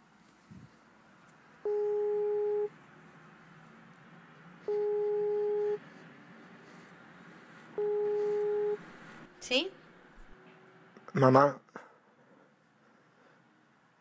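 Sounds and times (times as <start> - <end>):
telephone ringback tone: 1.6 - 2.7, 4.7 - 5.8, 7.8 - 8.8.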